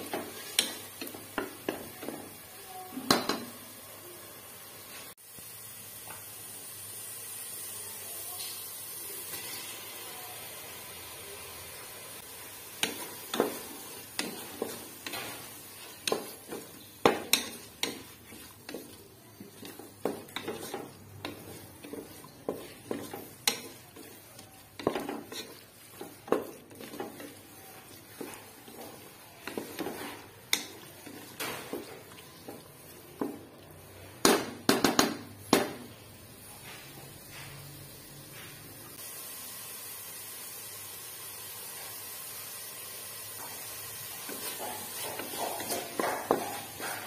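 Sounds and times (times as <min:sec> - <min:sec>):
spatula scraping metal pot: 0:12.9 - 0:31.9.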